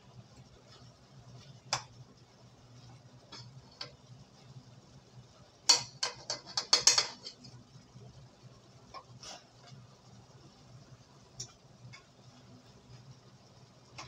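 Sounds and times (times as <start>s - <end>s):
metal spoon clinking on pot: 5.7s - 7.6s.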